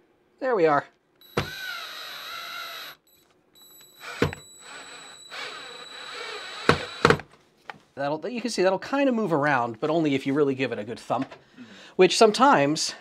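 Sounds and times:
drill clicks: 1.2 - 3.0, 3.6 - 7.3
cordless drill whining: 1.2 - 7.3.

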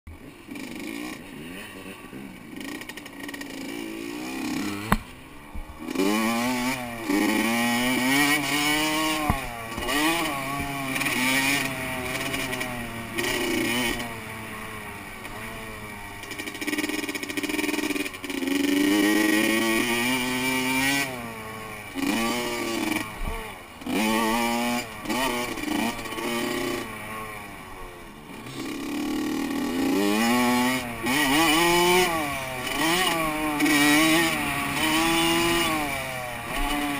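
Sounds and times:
dirt bike engine revving: 0.1 - 36.9
sharp knock: 4.8 - 5.1.

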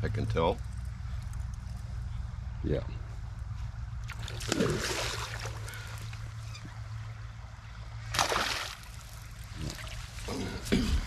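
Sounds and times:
fish splashing in water: 4.1 - 6.3, 8.1 - 10.3.

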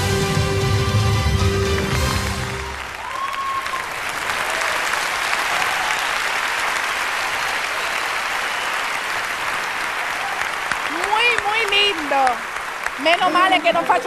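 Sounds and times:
circus music: 0.0 - 3.2
audience applauding: 0.0 - 14.0
crowd cheering: 0.0 - 14.0.

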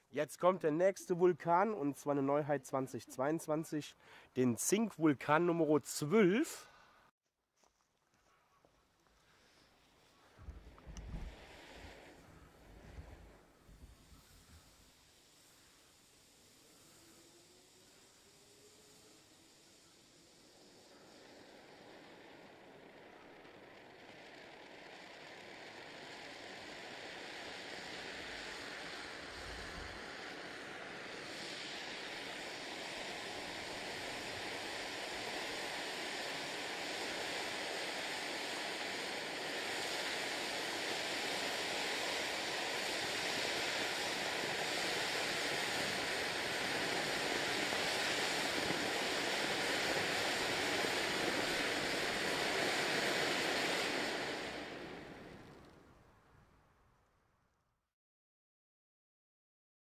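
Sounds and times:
firework fountain hissing: 9.2 - 56.2.

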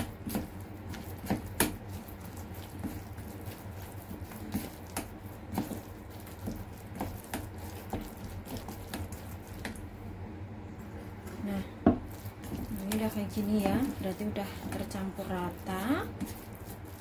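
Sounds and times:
spatula scraping a steel bowl: 12.0 - 17.0.

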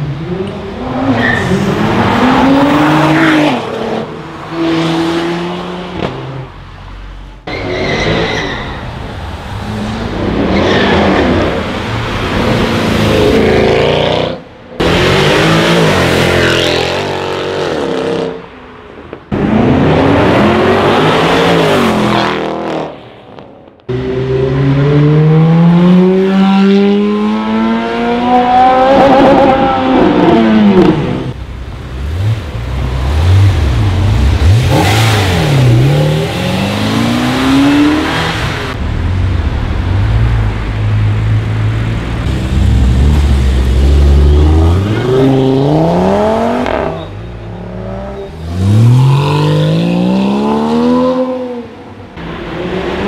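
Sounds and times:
car engine rumbling and revving: 0.0 - 53.0
sports car engines accelerating: 23.9 - 53.0.

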